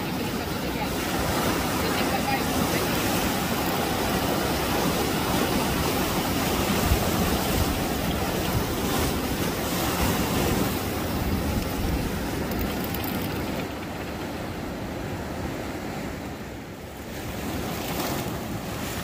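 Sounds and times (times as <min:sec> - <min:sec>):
ocean surf breaking: 0:00.0 - 0:19.0.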